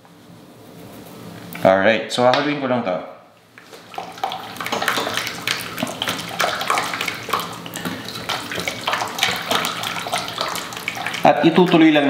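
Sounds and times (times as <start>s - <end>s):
whisk sloshing liquid in saucepan: 3.5s - 12.0s.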